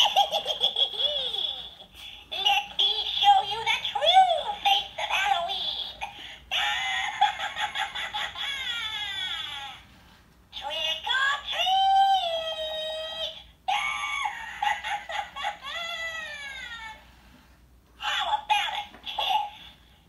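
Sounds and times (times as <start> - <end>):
recorded witch voice cackling: 0.0 - 9.8, 11.4 - 17.0.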